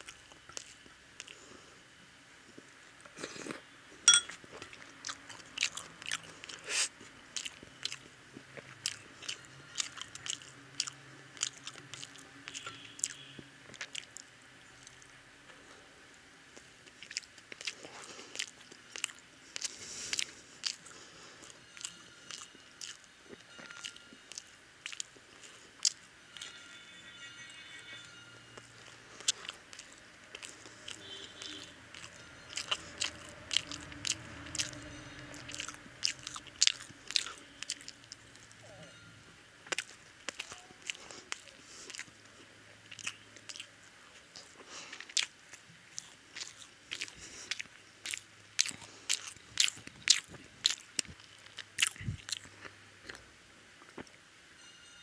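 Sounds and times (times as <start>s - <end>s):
wet mouth clicks and crunches: 0.0s - 1.4s, 4.7s - 15.1s, 16.6s - 23.1s, 23.8s - 26.0s, 28.8s - 38.3s, 39.7s - 42.1s, 42.9s - 43.7s, 44.3s - 54.2s
person chewing fried toast: 0.0s - 1.8s, 2.5s - 15.7s, 16.5s - 26.6s, 28.5s - 38.6s, 39.6s - 54.2s.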